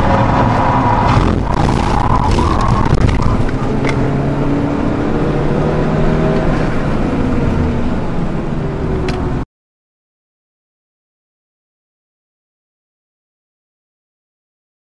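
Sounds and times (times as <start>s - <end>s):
car engine running: 0.0s - 9.4s
road and wind noise: 0.0s - 9.5s.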